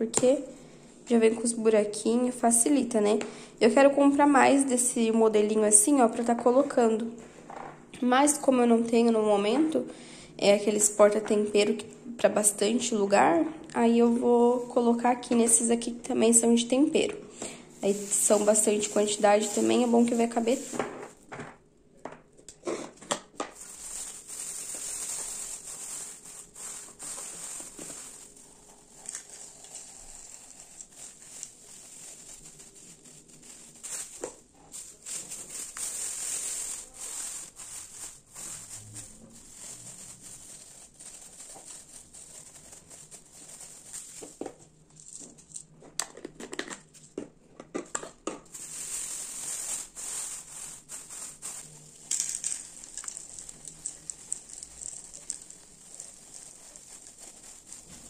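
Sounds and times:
plastic bags crinkling: 0:17.4 - 0:21.4, 0:23.3 - 0:45.6, 0:48.5 - 0:58.0.

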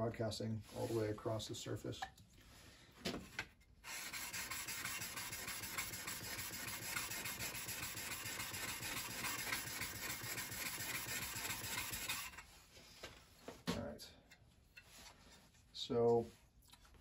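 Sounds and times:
steel scraper rasping on stone: 0:03.8 - 0:12.5.

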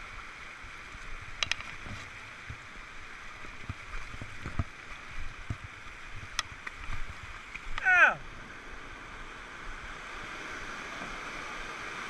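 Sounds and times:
white water rushing: 0:00.0 - 0:12.0
grass ticks and knocks: 0:00.9 - 0:07.9.

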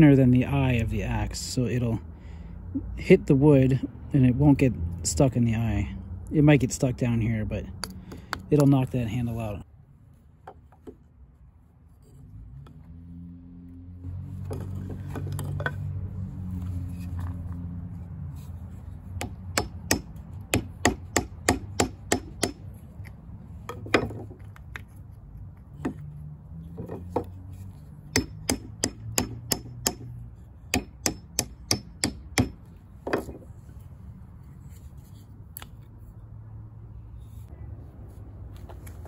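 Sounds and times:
hammer knocking on wood: 0:19.2 - 0:22.6.

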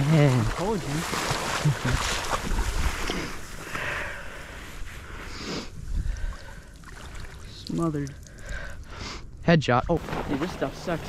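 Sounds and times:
wind rumbling on microphone: 0:00.0 - 0:03.7, 0:04.6 - 0:06.6
water sloshing: 0:00.0 - 0:03.8, 0:05.8 - 0:08.8.

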